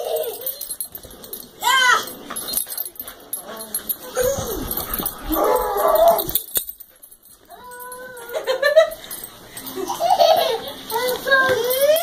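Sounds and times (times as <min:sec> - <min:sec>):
dogs play-wrestling: 0:00.0 - 0:12.0
dog whining and moaning: 0:03.6 - 0:06.6.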